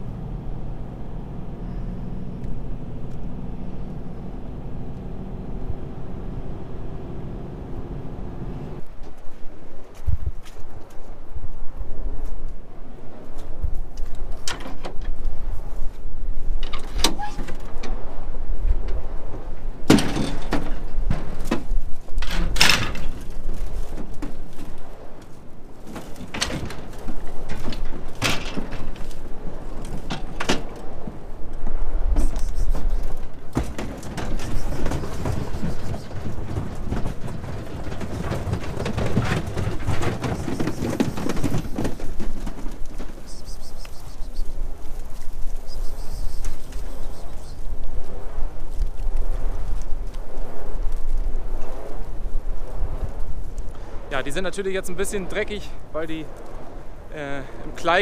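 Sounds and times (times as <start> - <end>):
wind rumble on microphone: 0.0 - 58.0
metal gate clanking and rattling: 14.4 - 15.2, 16.6 - 18.0, 19.9 - 23.4, 26.0 - 30.9
sheep hooves clattering on metal: 18.8 - 31.2, 32.2 - 48.0.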